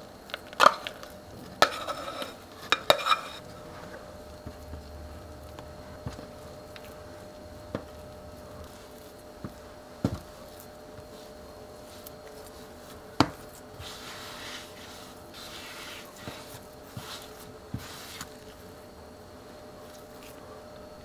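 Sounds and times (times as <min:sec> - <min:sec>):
dough scraping and pressing: 0:00.3 - 0:21.0
dough thump: 0:03.7 - 0:11.2, 0:13.1 - 0:14.2.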